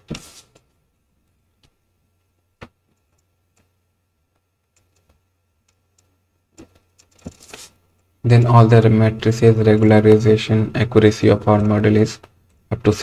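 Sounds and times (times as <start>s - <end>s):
low room hum: 0.0s - 13.0s
computer mouse clicks: 4.3s - 7.2s.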